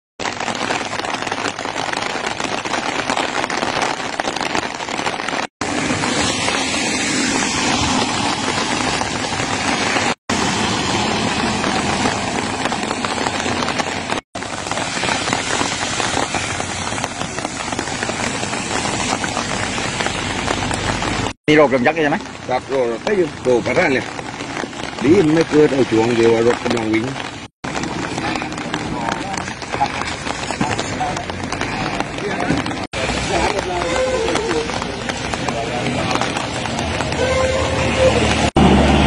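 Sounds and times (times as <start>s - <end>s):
heavy rain on paved road: 0.2s - 39.0s.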